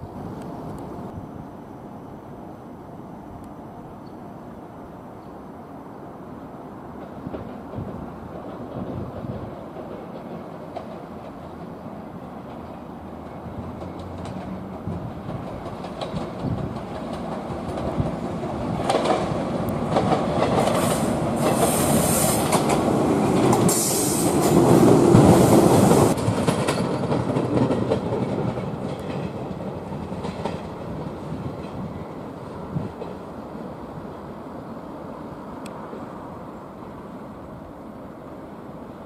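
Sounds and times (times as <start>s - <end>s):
train wheels clacking over rail joints: 6.9s - 32.0s.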